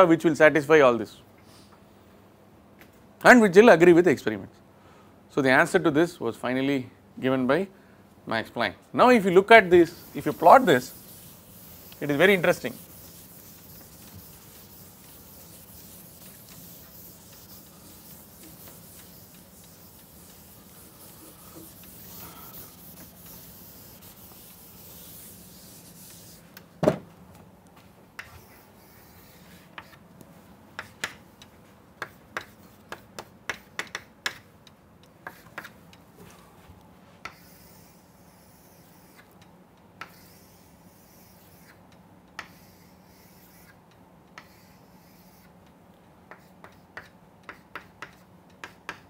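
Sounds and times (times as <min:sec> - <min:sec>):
duster rubbing on blackboard: 0:09.7 - 0:26.6, 0:28.2 - 0:30.0, 0:37.3 - 0:39.3, 0:40.0 - 0:41.8, 0:42.4 - 0:43.8, 0:44.4 - 0:45.5
chalk tapping and scraping: 0:09.7 - 0:26.7, 0:27.8 - 0:34.5, 0:35.2 - 0:35.8, 0:37.1 - 0:39.3, 0:40.0 - 0:41.8, 0:42.4 - 0:45.6, 0:46.3 - 0:49.0.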